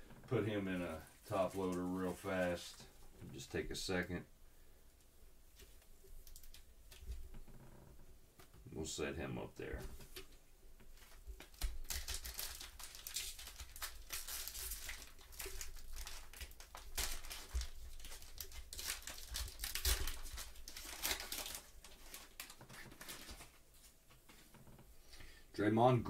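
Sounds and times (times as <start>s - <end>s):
foil wrapper crinkling: 11.0s - 23.8s
foil tearing: 11.5s - 23.6s.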